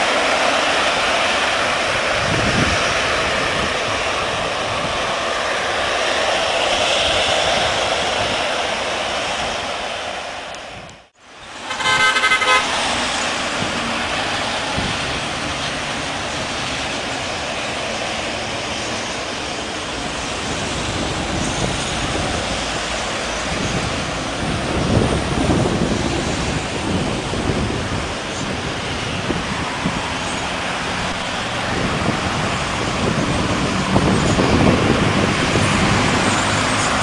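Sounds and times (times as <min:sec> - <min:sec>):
road traffic noise: 0:00.0 - 0:37.0
heavy vehicle rumbling past: 0:11.5 - 0:37.0
vehicle horn toot: 0:11.6 - 0:12.8.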